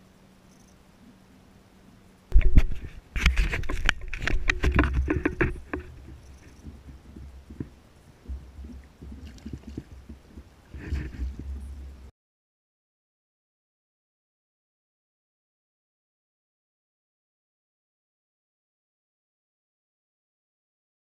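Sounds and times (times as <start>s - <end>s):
wind rumble on microphone: 2.3s - 12.1s
water splashing: 2.4s - 12.1s.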